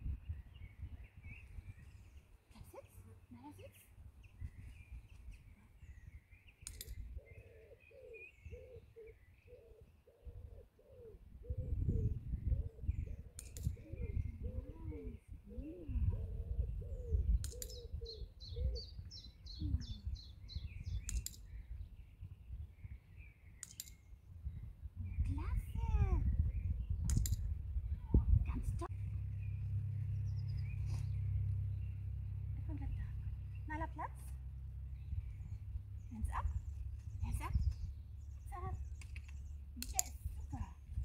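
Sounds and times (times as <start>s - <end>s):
birds chirping: 0.0s - 41.0s
bird trill: 5.4s - 11.6s, 16.8s - 21.9s
sharp clicks: 6.6s - 7.0s, 13.3s - 13.8s, 17.4s - 17.8s, 21.0s - 21.5s, 23.5s - 24.1s, 27.0s - 27.5s, 38.9s - 40.4s
bird cooing: 6.8s - 19.0s
low rumble: 24.5s - 41.0s.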